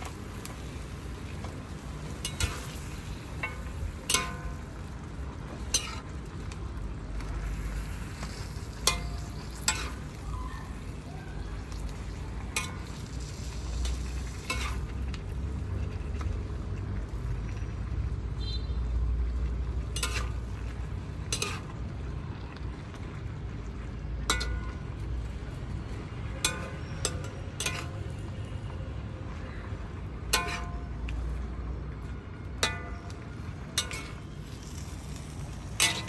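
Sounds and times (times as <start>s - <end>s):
food sizzling in a wok: 0.0s - 36.0s
metal spatula scraping wok: 2.1s - 4.6s, 5.6s - 6.1s, 7.5s - 10.2s, 11.9s - 15.2s, 19.8s - 21.8s, 26.4s - 28.1s, 30.2s - 31.0s, 32.6s - 36.0s
spatula clinking on wok: 2.2s - 2.7s, 3.4s - 4.7s, 8.8s - 10.2s, 12.4s - 13.0s, 14.4s - 15.0s, 20.0s - 20.4s, 21.3s - 21.7s, 24.2s - 24.9s, 26.4s - 28.0s, 30.2s - 30.9s, 32.6s - 34.2s.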